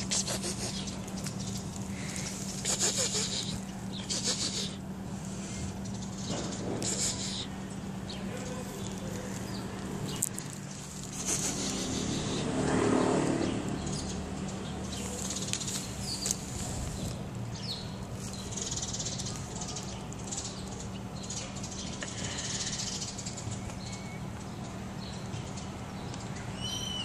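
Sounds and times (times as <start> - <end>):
steady low hum: 0.0 - 12.8.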